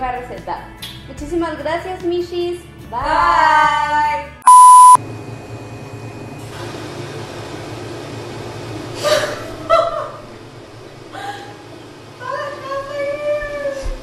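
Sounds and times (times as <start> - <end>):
electronic censor beep: 4.4 - 5.0
woman laughing: 9.0 - 10.3.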